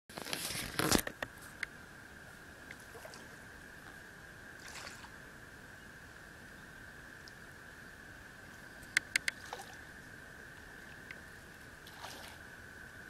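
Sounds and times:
water lapping at the shore: 0.1 - 13.0
sharp clicks: 8.9 - 9.4.

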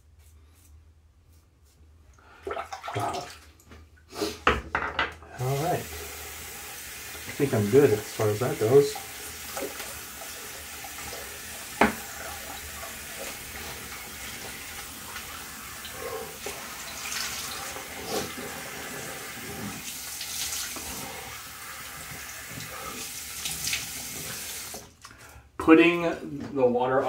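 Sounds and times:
water splashing: 2.4 - 3.7
tap running into sink: 11.0 - 12.5.

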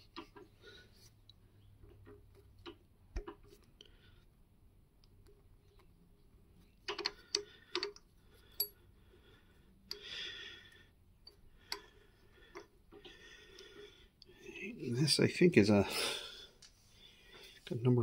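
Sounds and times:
metal clicks and taps: 6.8 - 8.8.

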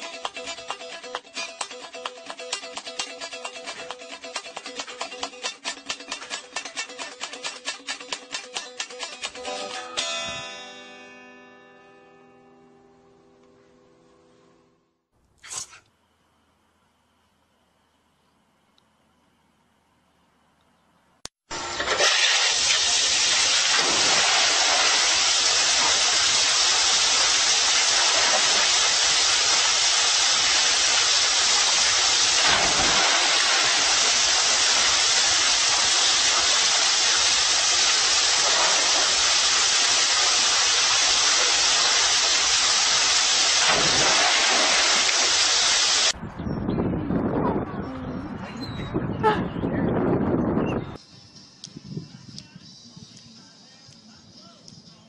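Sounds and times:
water rushing down slide into pool: 21.5 - 46.2.

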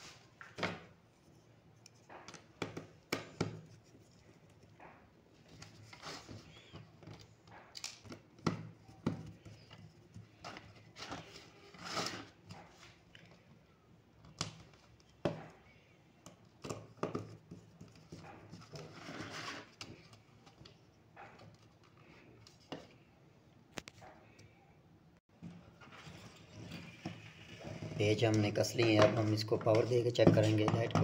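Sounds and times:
clicks scrapes and knocks: 16.4 - 23.0.

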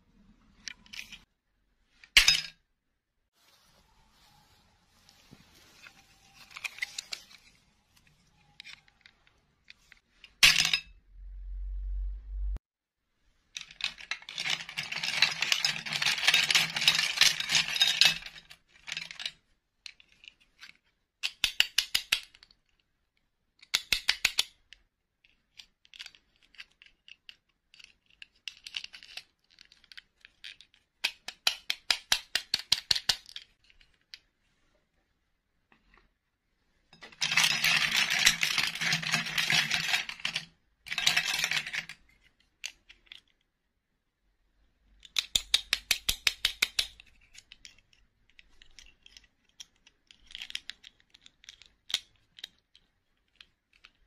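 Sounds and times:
plastic doll parts clattering: 5.8 - 10.9, 13.4 - 34.4, 36.9 - 43.6, 44.9 - 54.0
short low hum: 11.1 - 12.6.

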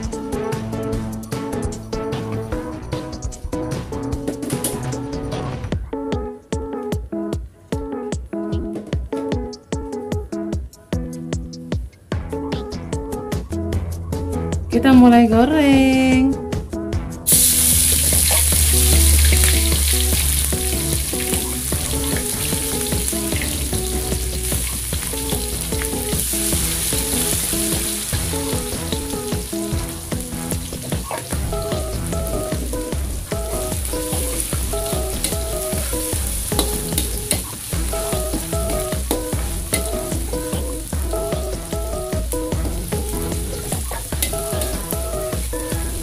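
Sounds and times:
frying in hot oil sizzle: 17.3 - 46.0.

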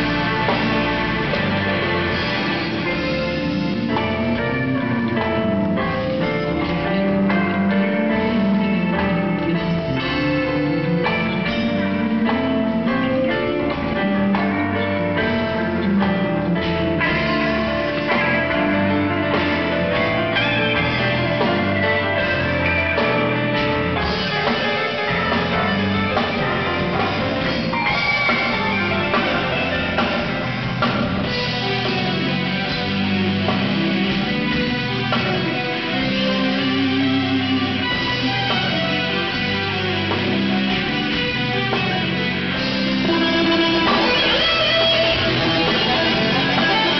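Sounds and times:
bass guitar: 0.0 - 46.9
drum kit: 0.0 - 46.9
electric guitar: 0.0 - 46.9
keyboards: 0.0 - 46.9.

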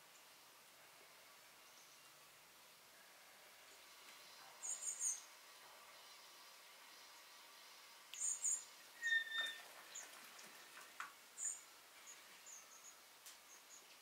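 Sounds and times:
faint steady hiss: 0.0 - 14.0
small birds chirping: 3.6 - 5.4, 8.1 - 10.7, 11.4 - 14.0
whistled bird note: 9.0 - 9.6.

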